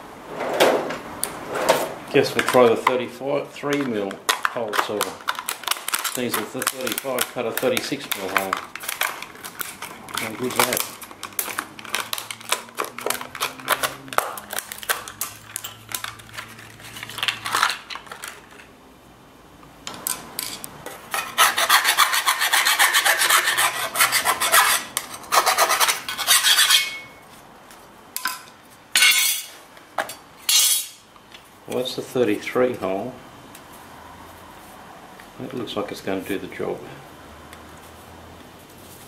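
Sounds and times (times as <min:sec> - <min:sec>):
scissors cutting plastic packaging: 0:04.3 - 0:18.4
file rasping on steel: 0:21.1 - 0:27.0.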